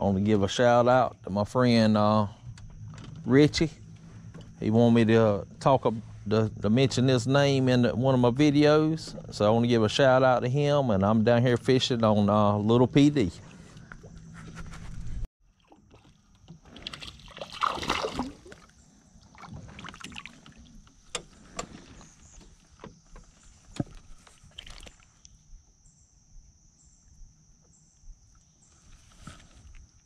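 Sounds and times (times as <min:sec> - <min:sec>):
fish splashing at water surface: 0:16.8 - 0:20.6.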